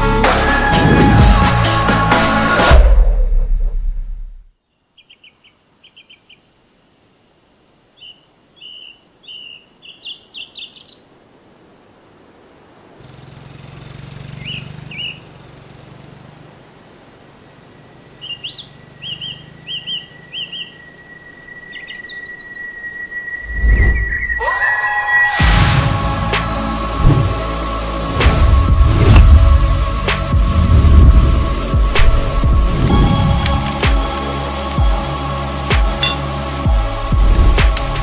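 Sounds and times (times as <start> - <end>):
songbirds chirping and trilling: 4.6 - 7.0, 7.7 - 25.3, 28.8 - 38.0
low rumble: 25.4 - 33.6.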